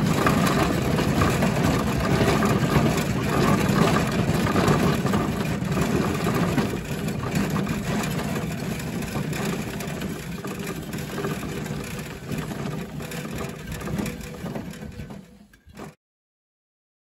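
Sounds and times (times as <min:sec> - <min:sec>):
small rail vehicle engine running: 0:00.0 - 0:16.0.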